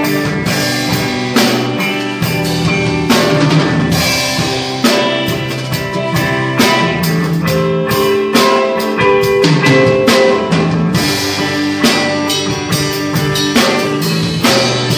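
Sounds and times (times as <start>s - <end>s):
drum and cymbal hits: 0.0s - 14.9s
sustained guitar notes: 0.0s - 14.9s.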